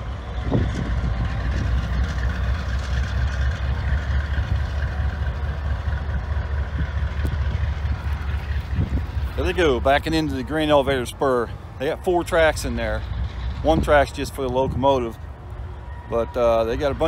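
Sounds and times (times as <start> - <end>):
diesel locomotive engine rumbling: 0.0 - 17.0.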